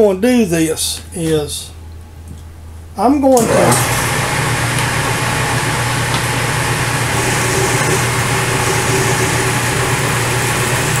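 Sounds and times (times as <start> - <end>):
milling machine motor hum: 3.4 - 11.0.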